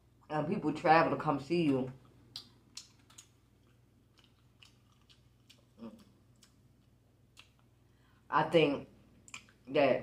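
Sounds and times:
soft chewing mouth clicks: 1.9s - 7.8s, 9.2s - 9.7s.

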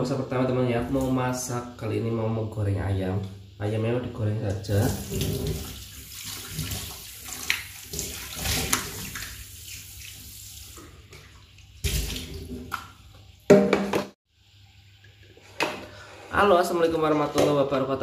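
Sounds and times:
tap water running into sink: 4.5s - 13.9s
knock: 13.5s - 14.2s.

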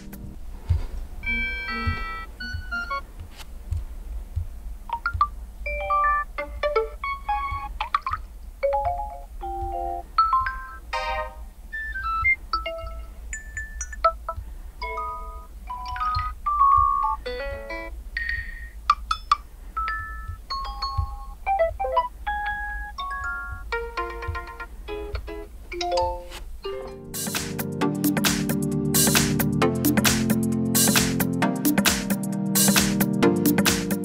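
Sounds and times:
phone message tones: 1.2s - 3.0s, 19.8s - 24.6s.

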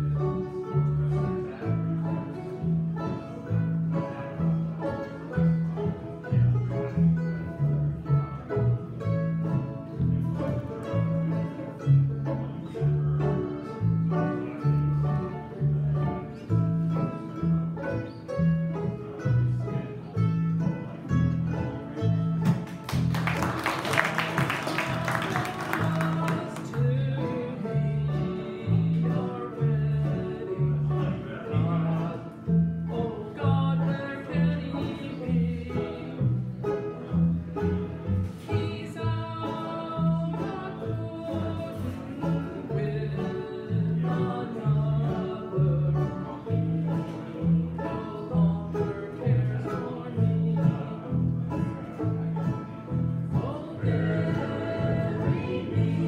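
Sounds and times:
bluegrass band playing: 0.0s - 56.0s.

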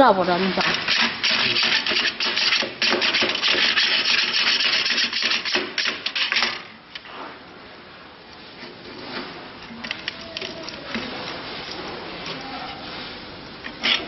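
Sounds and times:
hand file rasping on metal: 0.7s - 5.5s.

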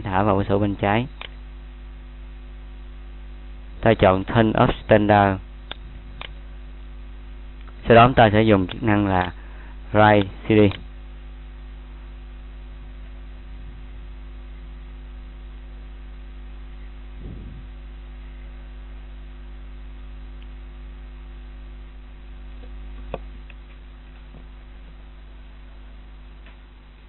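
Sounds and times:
electrical mains hum: 0.0s - 27.0s
sharp click: 1.2s - 1.4s, 5.6s - 6.4s, 8.6s - 9.4s
soft low thump: 17.2s - 17.7s.

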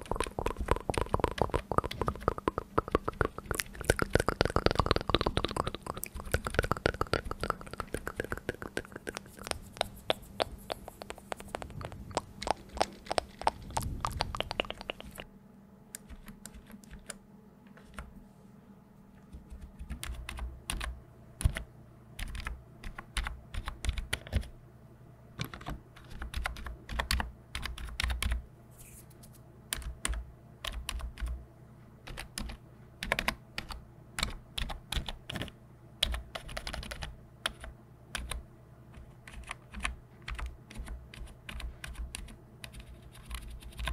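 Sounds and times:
keyboard typing clicks: 0.0s - 15.3s, 19.3s - 24.5s, 32.1s - 38.4s.

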